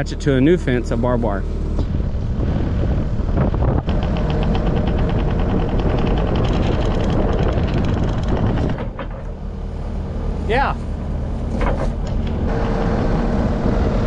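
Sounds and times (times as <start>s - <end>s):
diesel engine running: 0.0s - 14.0s
fast clicking rattle: 3.8s - 9.4s.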